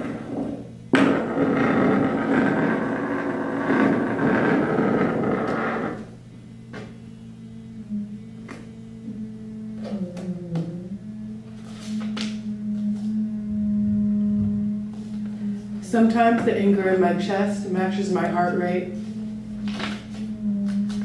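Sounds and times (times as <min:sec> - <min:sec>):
dense rumbling noise: 0:00.0 - 0:06.2
low steady hum: 0:00.0 - 0:21.0.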